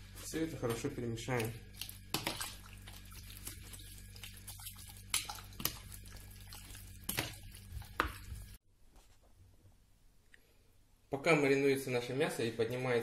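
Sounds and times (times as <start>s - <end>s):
wet squelching of chicken: 0.1s - 8.6s.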